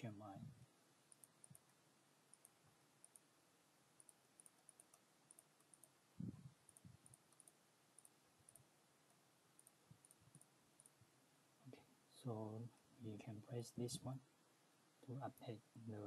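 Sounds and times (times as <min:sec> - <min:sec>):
computer mouse clicks: 0:01.1 - 0:03.3, 0:04.0 - 0:06.0, 0:06.6 - 0:08.7, 0:09.6 - 0:11.0.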